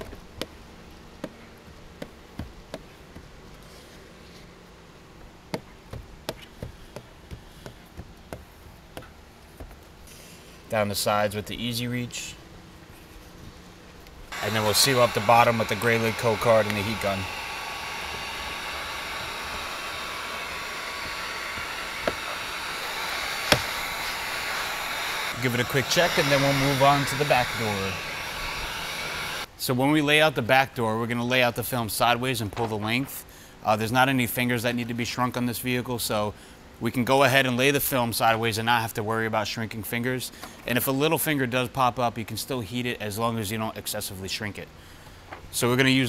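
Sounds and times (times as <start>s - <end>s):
heat gun blowing: 14.3s - 29.5s.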